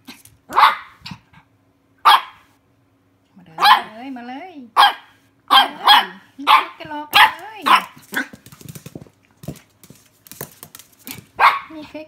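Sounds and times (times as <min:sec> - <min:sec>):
puppy yapping: 0:00.5 - 0:01.2, 0:02.0 - 0:02.5
faint scuffs and ticks: 0:07.1 - 0:11.4.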